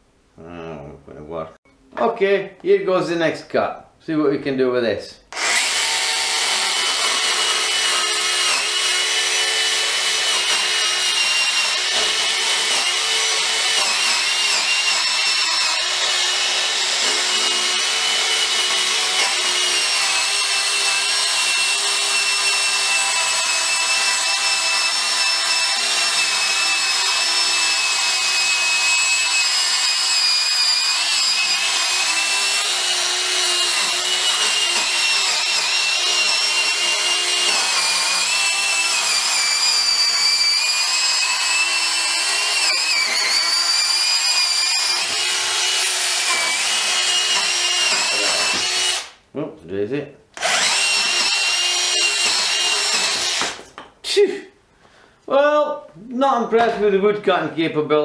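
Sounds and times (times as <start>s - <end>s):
electric saw whining: 5.3s - 49.1s, 50.4s - 53.6s
blade rasping on wood: 5.4s - 49.1s.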